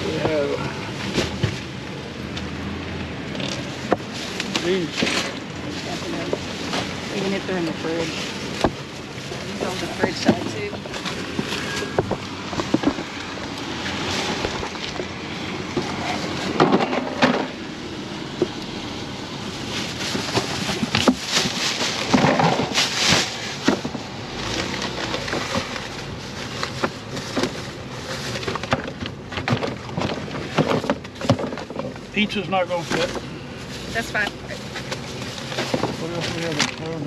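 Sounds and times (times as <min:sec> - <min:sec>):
paper bags rustling: 0:03.6 - 0:37.0
packages knocking: 0:09.6 - 0:17.6, 0:19.8 - 0:32.0.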